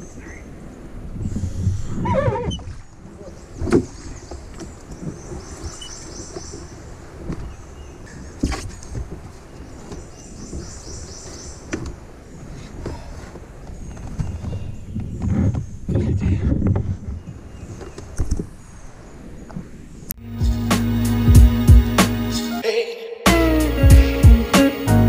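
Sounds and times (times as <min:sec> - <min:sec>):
water sloshing along canoe hull: 0:00.0 - 0:19.8
paddle knocking against canoe: 0:02.4 - 0:18.5
wavering voice-like sound: 0:22.4 - 0:23.6.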